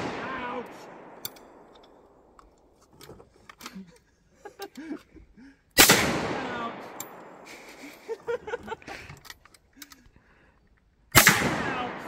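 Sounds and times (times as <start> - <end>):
shotgun shot: 0.0 - 1.7, 5.8 - 7.5, 11.2 - 12.0
shotgun action clicks and knocks: 1.0 - 3.8.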